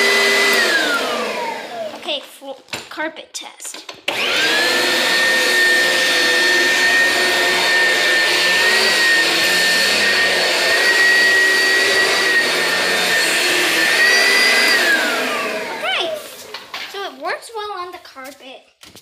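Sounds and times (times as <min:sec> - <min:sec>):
vacuum cleaner motor whine: 0:00.0 - 0:02.0, 0:04.1 - 0:16.7.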